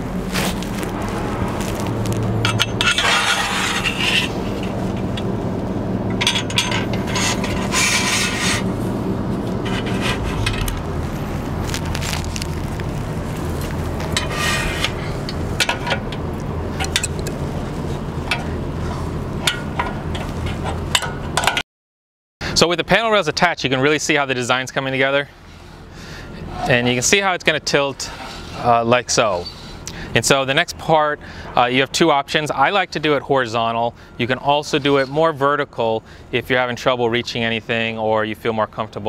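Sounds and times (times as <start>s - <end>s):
steady low hum: 0.0s - 21.6s, 22.4s - 39.0s
metal rail scraping on bracket: 2.4s - 5.2s, 6.2s - 8.8s, 9.6s - 10.8s, 14.1s - 16.1s, 28.0s - 28.8s.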